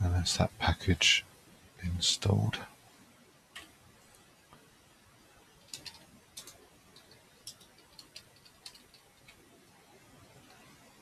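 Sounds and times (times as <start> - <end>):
computer keyboard keystrokes: 5.6 - 9.4.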